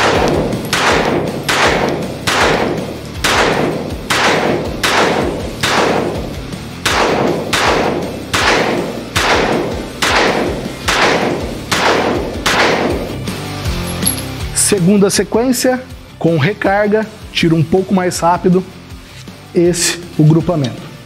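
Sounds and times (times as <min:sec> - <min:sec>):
pistol shots: 0:00.0 - 0:13.2.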